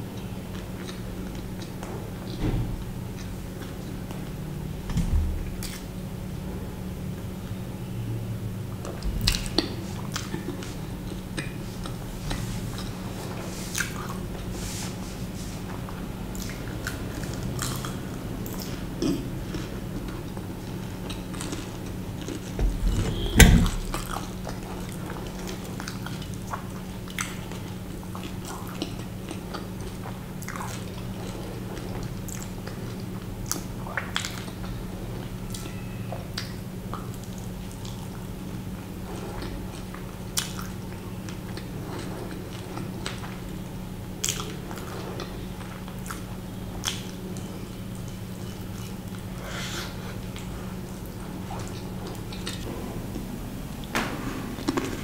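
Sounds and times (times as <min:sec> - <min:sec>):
steady low hum: 0:00.0 - 0:55.0
thump: 0:04.9 - 0:05.5, 0:22.6 - 0:24.0
chewing and biting food: 0:08.8 - 0:14.5, 0:15.9 - 0:22.6, 0:23.8 - 0:34.8, 0:44.1 - 0:49.4.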